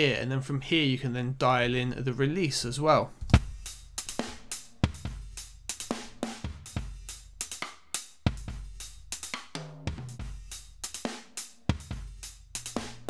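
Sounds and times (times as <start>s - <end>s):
compressed drum kit loop: 3.2s - 13.0s.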